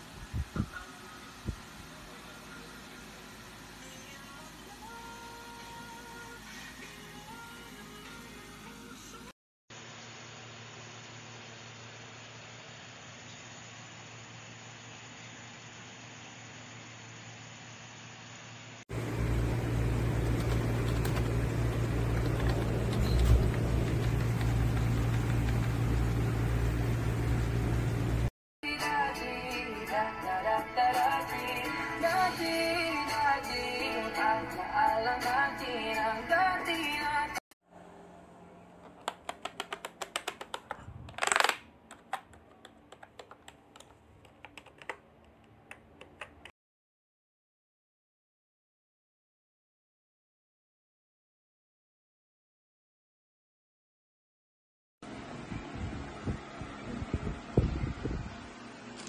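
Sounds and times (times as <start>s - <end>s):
steady low hum: 18.9s - 28.3s, 55.1s - 59.0s
keyboard keys clicking: 20.2s - 26.0s, 38.8s - 46.5s.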